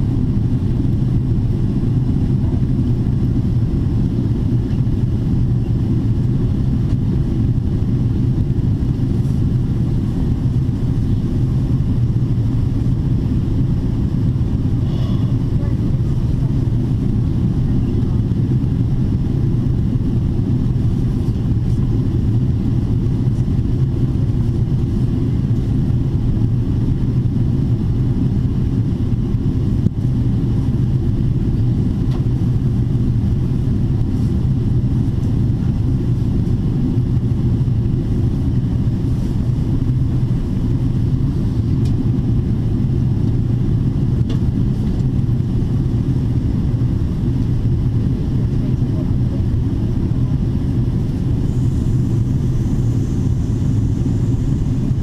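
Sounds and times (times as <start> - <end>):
airplane cabin rumble: 0.0 - 55.0.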